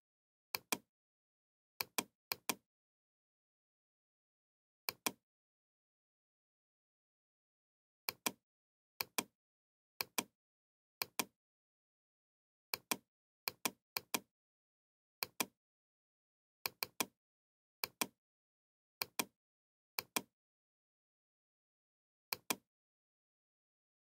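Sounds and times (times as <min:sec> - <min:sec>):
computer mouse clicks: 0:00.6 - 0:00.9, 0:01.8 - 0:02.6, 0:04.9 - 0:05.2, 0:08.1 - 0:08.4, 0:09.0 - 0:09.3, 0:10.0 - 0:10.3, 0:11.0 - 0:11.3, 0:12.7 - 0:14.3, 0:15.2 - 0:15.6, 0:16.7 - 0:17.2, 0:17.8 - 0:18.2, 0:19.0 - 0:19.3, 0:20.0 - 0:20.3, 0:22.3 - 0:22.6.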